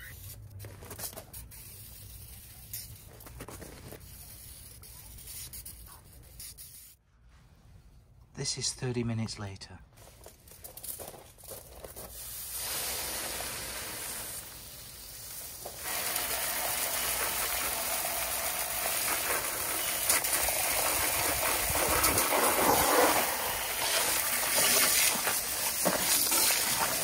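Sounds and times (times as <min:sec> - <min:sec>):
steady hissing spray: 0:12.0 - 0:27.0.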